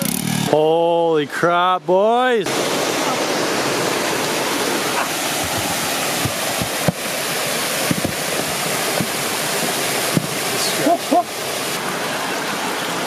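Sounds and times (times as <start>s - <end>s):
waterfall rushing: 2.4s - 13.0s
low knocks: 7.8s - 10.4s.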